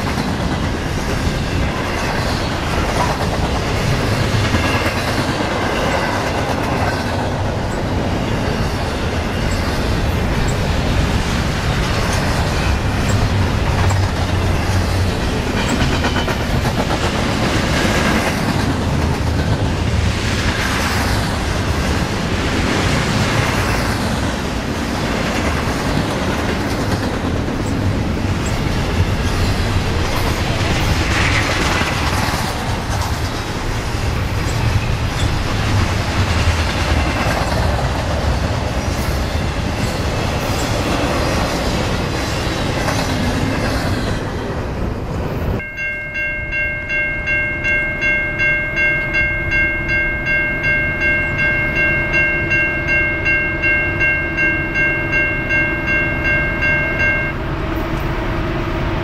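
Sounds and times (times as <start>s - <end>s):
railroad crossing bell ringing: 0.0s - 20.1s, 45.6s - 58.1s
freight train rumble and wheel clatter: 0.0s - 59.0s.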